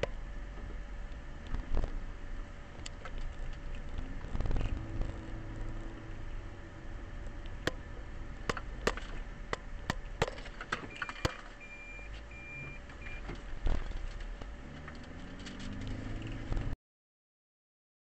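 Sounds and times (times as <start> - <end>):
car engine speeding up: 4.0 - 6.9, 14.5 - 16.8
short beeps: 10.9 - 13.3.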